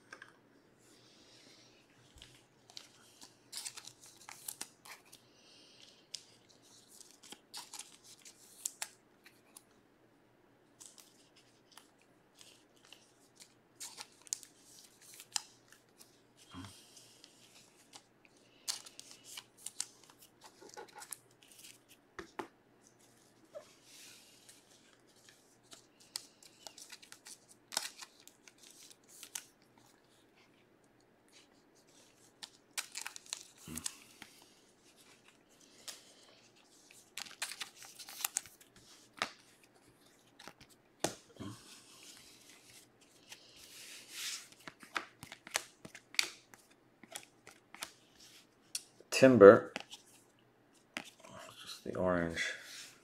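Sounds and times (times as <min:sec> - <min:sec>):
cards clicking and rustling: 0:02.1 - 0:05.2, 0:05.8 - 0:09.6, 0:10.8 - 0:16.1, 0:17.0 - 0:22.5, 0:24.4 - 0:30.1, 0:31.8 - 0:49.0, 0:49.7 - 0:50.2, 0:50.8 - 0:51.8.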